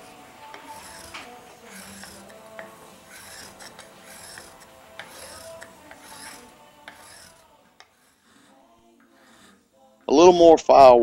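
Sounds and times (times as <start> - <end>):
file rasping on metal: 0.0 - 9.7.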